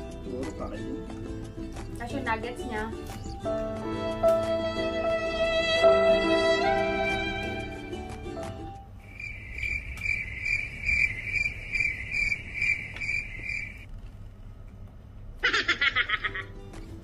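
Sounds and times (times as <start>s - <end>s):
violin music: 0.1s - 8.8s
cricket chirping: 9.0s - 13.9s.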